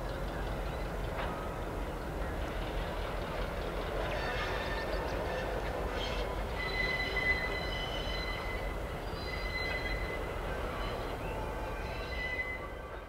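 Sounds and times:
low rumble of rolling train: 0.0 - 13.0
train wheels squealing: 4.0 - 13.0.

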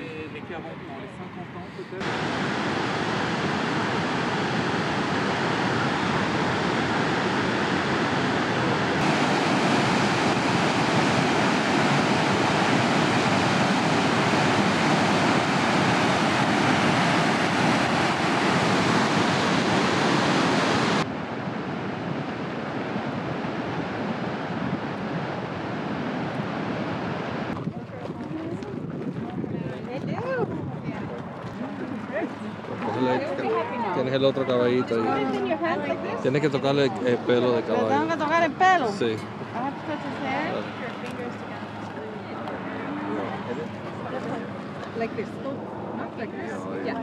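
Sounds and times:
waterfall rushing: 2.0 - 27.6.

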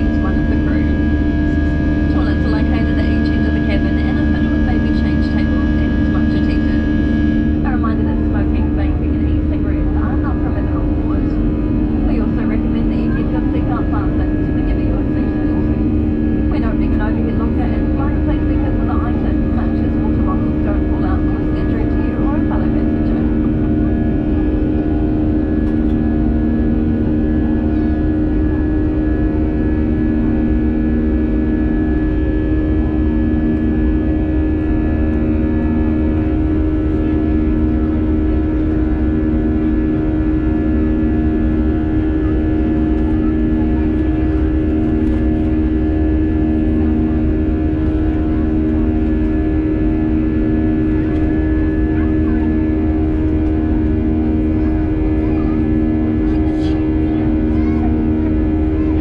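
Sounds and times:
jet engines in cabin: 0.0 - 59.0.

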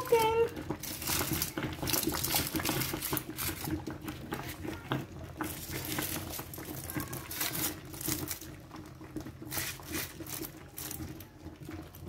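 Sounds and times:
foil crinkling: 0.0 - 8.8, 9.4 - 11.3
water pouring into pot: 0.0 - 12.0.

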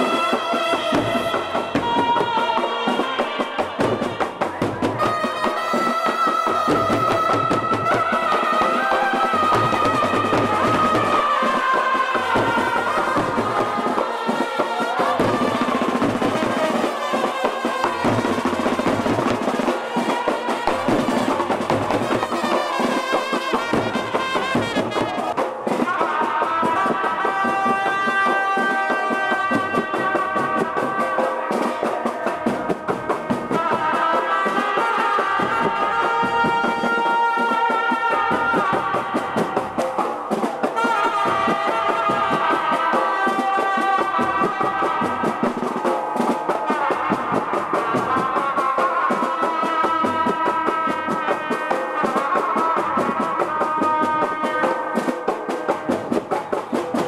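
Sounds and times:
trumpets playing melody: 0.0 - 56.8
drums: 0.0 - 57.0.

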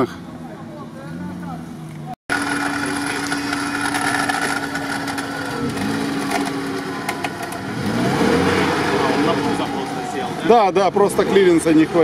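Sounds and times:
winch motor whining: 2.3 - 10.4.

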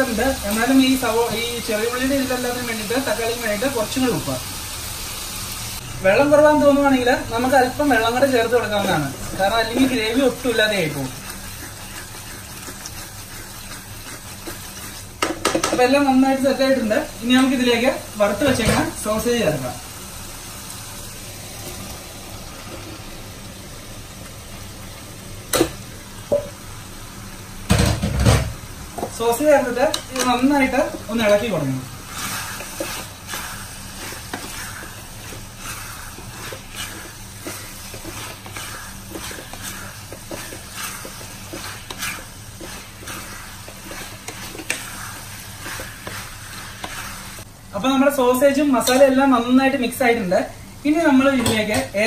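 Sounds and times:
masala sizzling in a pan: 0.0 - 52.0
plate knocking on pan: 27.7 - 29.1
sausages sliding into pan: 29.9 - 47.5.

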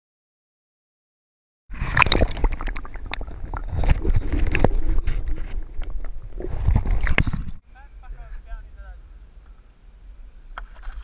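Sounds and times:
water splashing and gurgling: 1.7 - 7.6.

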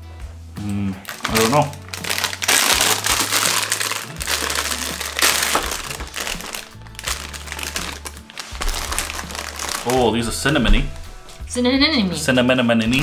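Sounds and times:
plastic bag crinkling: 1.0 - 10.4.

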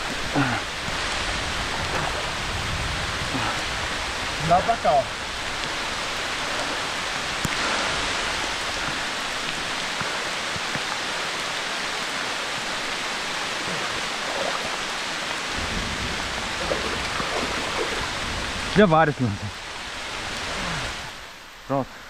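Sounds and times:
water hissing: 12.5 - 18.8.

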